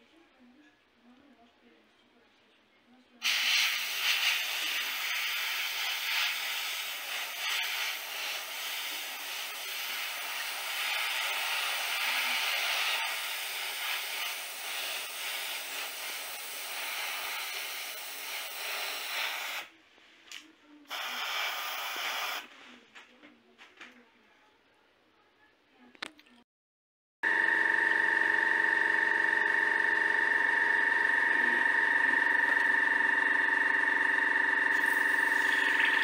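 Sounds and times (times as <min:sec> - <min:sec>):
airbrush puffs: 0:03.2 - 0:19.7, 0:20.9 - 0:22.8
airbrush spraying: 0:03.2 - 0:19.7, 0:20.9 - 0:22.5.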